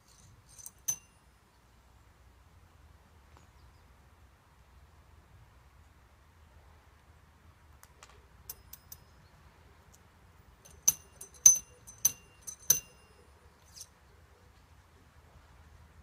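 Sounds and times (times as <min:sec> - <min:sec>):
metal ramrod clinking in gun barrel: 0:00.0 - 0:01.2, 0:08.5 - 0:09.2, 0:10.6 - 0:13.9.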